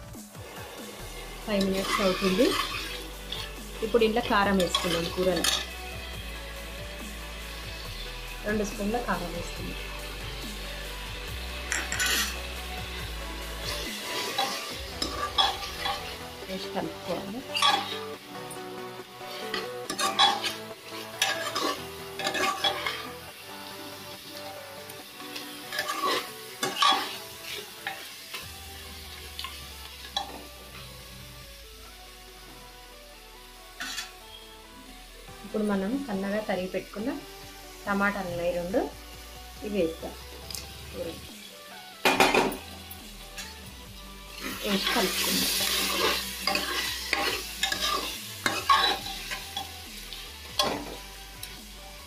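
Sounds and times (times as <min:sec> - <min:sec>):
spices sizzling in oil: 0:00.0 - 0:52.0
metal spoon scraping a pot: 0:01.6 - 0:03.6, 0:04.5 - 0:05.8, 0:11.6 - 0:12.5, 0:13.6 - 0:16.2, 0:17.4 - 0:18.1, 0:19.2 - 0:23.1, 0:25.7 - 0:28.0, 0:33.8 - 0:34.1, 0:44.4 - 0:49.7.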